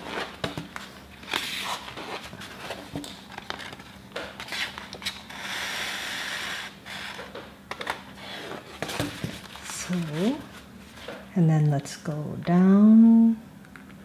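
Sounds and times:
paper pages rustling: 0:00.0 - 0:05.2, 0:07.8 - 0:11.2.

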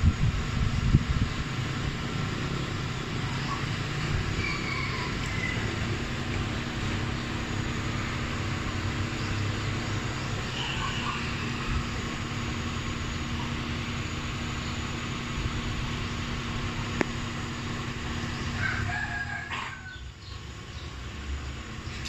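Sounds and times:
low hum and rumble: 0:00.0 - 0:22.0
rooster crowing: 0:04.2 - 0:06.1, 0:10.5 - 0:11.8, 0:18.5 - 0:20.1.

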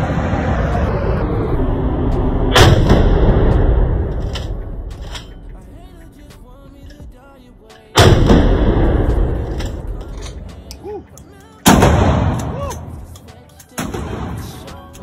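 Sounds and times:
shotgun shots reverberating indoors: 0:08.0 - 0:09.5.

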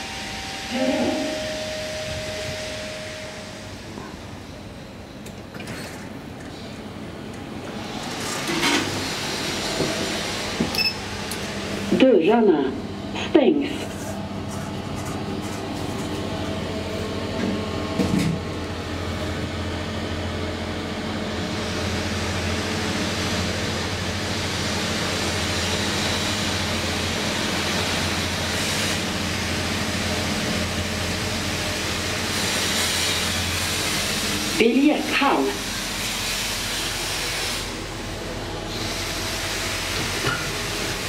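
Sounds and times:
elevator hum: 0:00.0 - 0:32.3
elevator ride rushing noise: 0:00.0 - 0:41.0.

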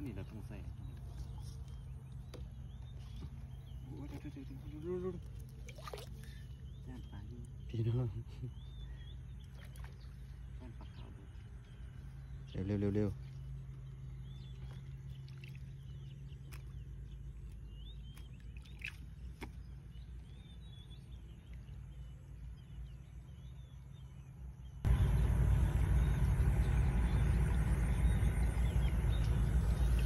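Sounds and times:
low steady rumble: 0:00.0 - 0:30.0
small birds chirping: 0:00.0 - 0:30.0
rushing water: 0:03.8 - 0:06.3.

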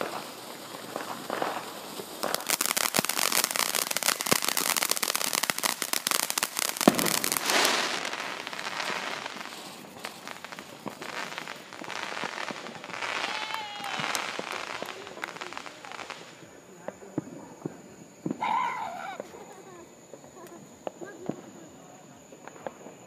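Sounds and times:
firework bang: 0:00.0 - 0:19.4
firework fountain popping: 0:00.0 - 0:23.0
firework hissing: 0:00.0 - 0:23.0.

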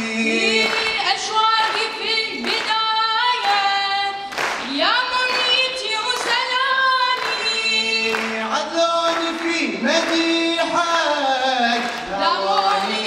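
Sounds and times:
voices singing long held notes: 0:10.0 - 0:13.0.

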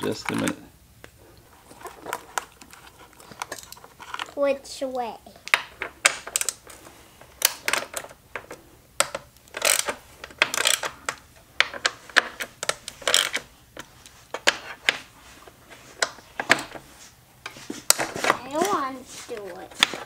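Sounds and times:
hand tools clicking and clinking: 0:05.4 - 0:13.4.

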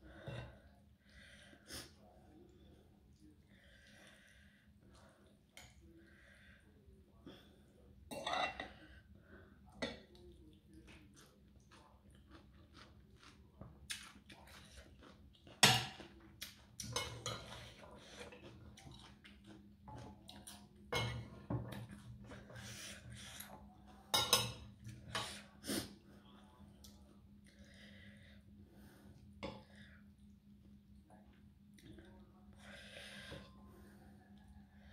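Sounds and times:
chewing: 0:10.1 - 0:20.9
cutlery clinking on a plate: 0:16.8 - 0:17.6, 0:21.0 - 0:21.9, 0:24.1 - 0:25.4.

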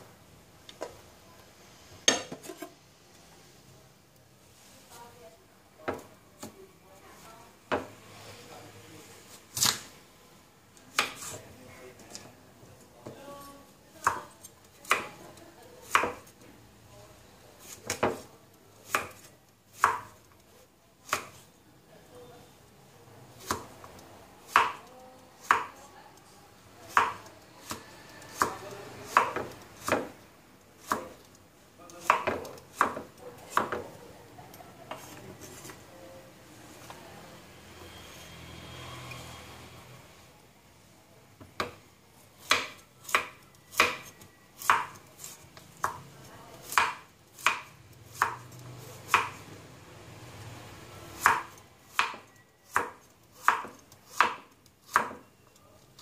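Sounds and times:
knife chopping on wooden block: 0:28.4 - 0:30.2, 0:32.0 - 0:33.8, 0:42.4 - 0:45.0, 0:46.6 - 0:48.4, 0:51.2 - 0:55.2.

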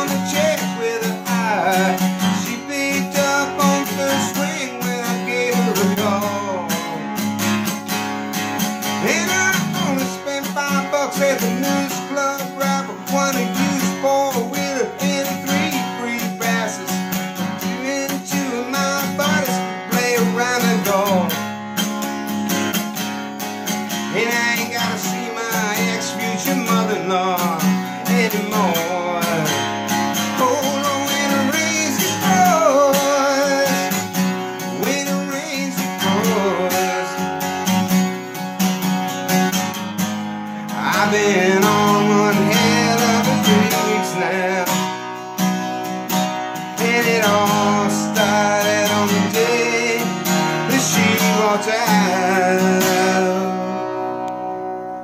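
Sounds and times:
acoustic guitar strumming: 0:00.0 - 0:55.0.

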